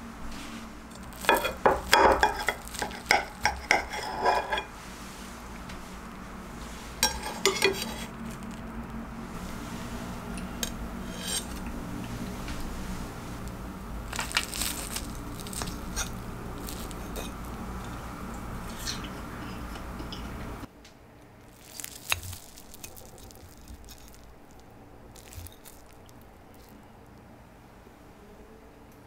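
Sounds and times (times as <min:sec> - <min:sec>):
low background hum: 0:00.0 - 0:29.0
fork squishing through egg: 0:00.9 - 0:04.1, 0:14.1 - 0:17.9, 0:21.5 - 0:26.8.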